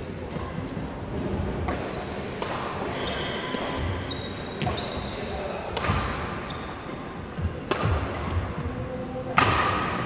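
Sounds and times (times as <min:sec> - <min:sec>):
shoes squeaking on wooden floor: 0:00.0 - 0:01.1, 0:04.0 - 0:05.2
racket hitting shuttlecock: 0:01.6 - 0:02.9, 0:05.7 - 0:06.5, 0:07.4 - 0:08.6, 0:09.3 - 0:10.0.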